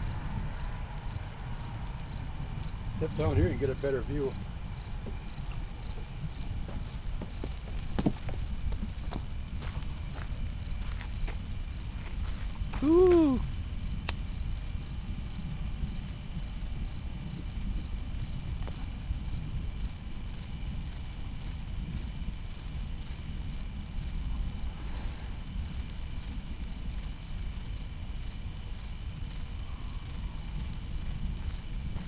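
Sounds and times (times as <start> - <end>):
low rumble: 0.0 - 15.3
crickets chirping: 0.0 - 32.0.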